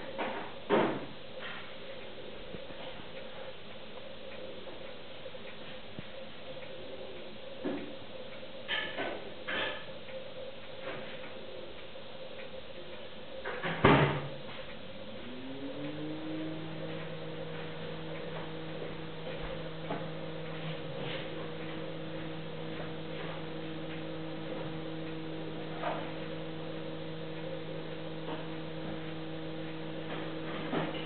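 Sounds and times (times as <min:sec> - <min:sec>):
soft ticks: 0:02.0 - 0:08.5, 0:10.0 - 0:13.4, 0:14.5 - 0:16.0, 0:16.8 - 0:31.0
low hum rising in pitch: 0:14.9 - 0:31.0.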